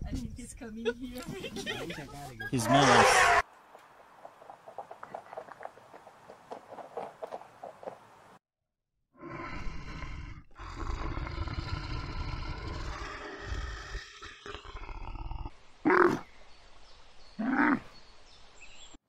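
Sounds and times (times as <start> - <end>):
bear growling low: 9.2 - 16.3.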